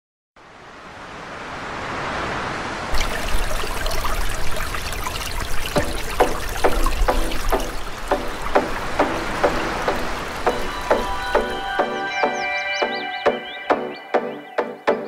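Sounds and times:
water trickling and splashing: 0.8s - 12.1s
rush of noise: 5.8s - 11.8s.

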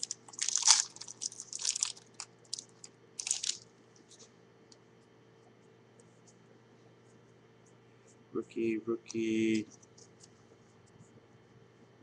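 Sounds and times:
wrapper crinkling: 0.0s - 4.2s.

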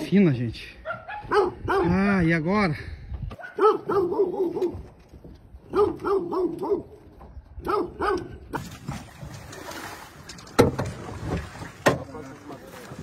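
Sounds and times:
dog barking: 0.8s - 2.0s, 3.4s - 4.8s, 5.7s - 7.0s, 7.6s - 8.4s.

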